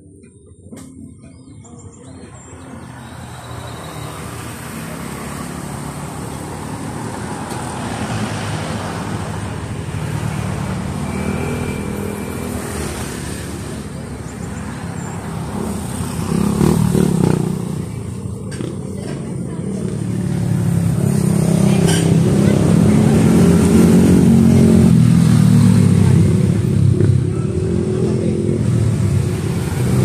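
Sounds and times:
cars driving past: 0:02.3 - 0:30.0
motorcycle driving past: 0:14.9 - 0:19.0.

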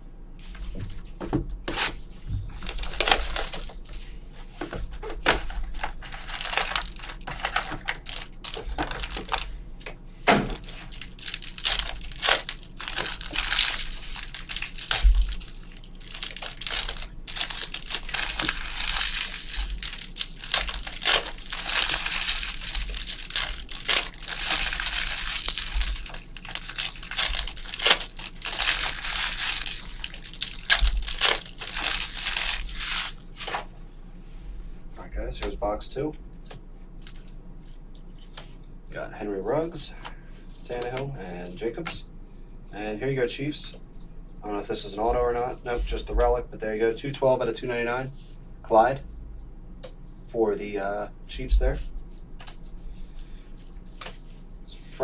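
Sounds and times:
wrappers tearing and crinkling: 0:02.5 - 0:04.0, 0:05.2 - 0:09.5, 0:10.5 - 0:33.7.

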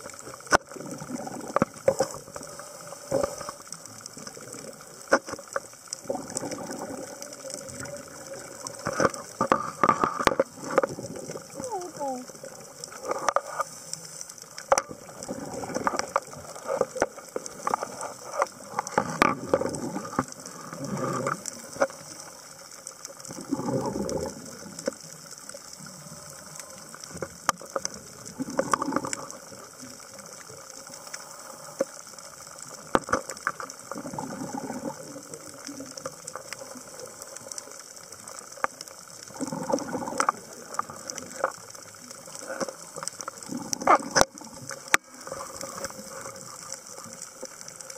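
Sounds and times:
sharp clicks and crackles: 0:00.0 - 0:47.9
regulator bubble bursts: 0:06.0 - 0:08.6.

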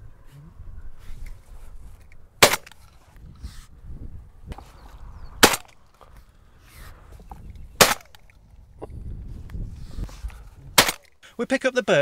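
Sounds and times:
shotgun shots: 0:02.4 - 0:02.8, 0:05.4 - 0:05.8, 0:07.8 - 0:08.2, 0:10.8 - 0:11.1.

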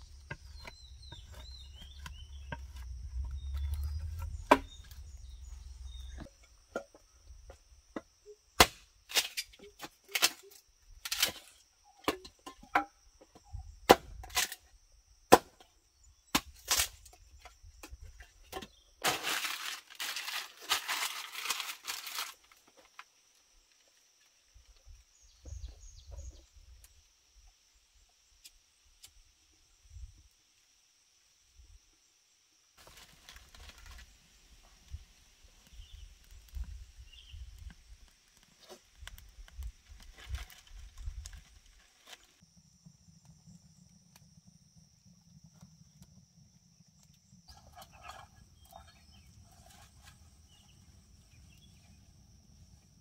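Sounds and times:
blade chopping wood: 0:00.1 - 0:05.2, 0:08.6 - 0:10.5, 0:13.9 - 0:14.6
dry palm fronds rustling: 0:19.0 - 0:23.9, 0:32.8 - 0:36.6, 0:38.0 - 0:42.4.

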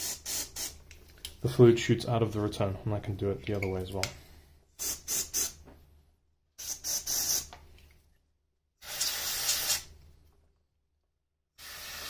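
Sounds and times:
aerosol spray hissing: 0:00.0 - 0:00.8, 0:04.8 - 0:05.6, 0:06.6 - 0:07.5, 0:08.8 - 0:09.9.

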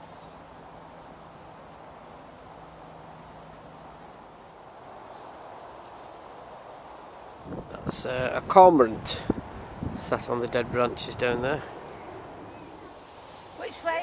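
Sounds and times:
outdoor background noise: 0:00.0 - 0:14.0
faint high chirp: 0:02.3 - 0:02.8.

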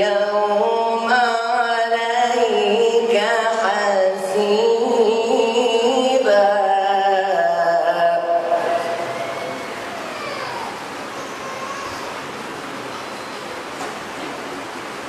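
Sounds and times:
man chanting through microphone: 0:00.0 - 0:09.6.

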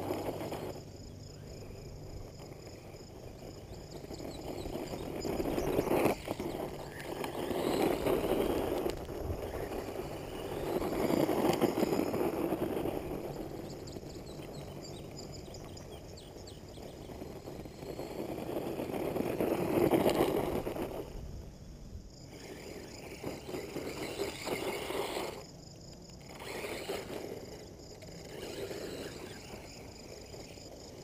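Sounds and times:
faint high chirps: 0:00.5 - 0:18.4
wind buffeting microphone: 0:01.5 - 0:25.2.

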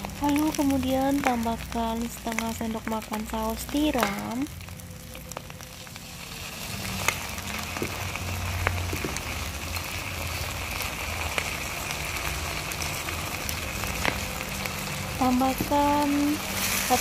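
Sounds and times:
food sizzling in hot oil: 0:00.0 - 0:17.0
oil popping and crackling: 0:00.0 - 0:17.0.

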